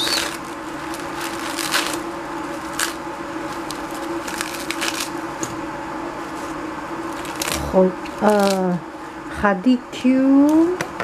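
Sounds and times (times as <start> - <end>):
lettuce tearing and crunching: 0.0 - 5.3, 6.3 - 8.8.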